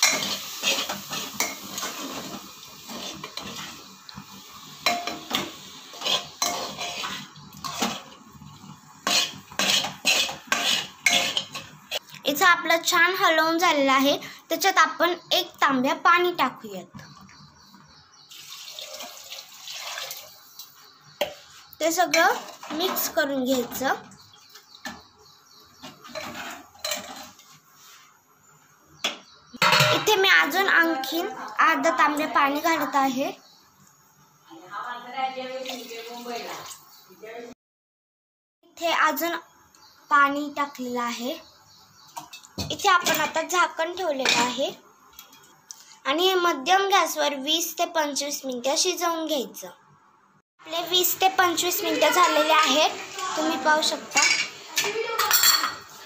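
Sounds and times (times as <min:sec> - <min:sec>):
metal ladle scraping a pan: 0:00.0 - 0:03.9, 0:04.8 - 0:12.0, 0:22.1 - 0:23.1, 0:25.8 - 0:28.0, 0:54.1 - 0:55.8.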